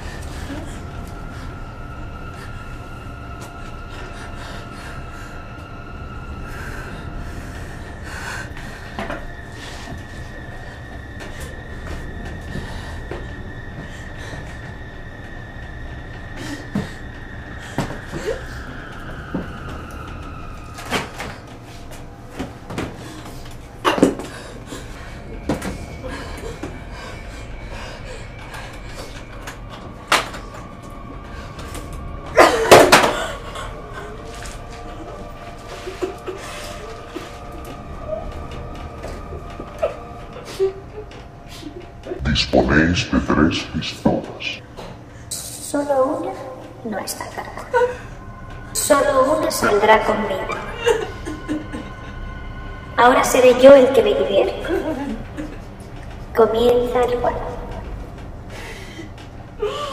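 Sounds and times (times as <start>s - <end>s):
low rumble drone: 0.0s - 59.9s
sustained high tone: 33.8s - 44.7s.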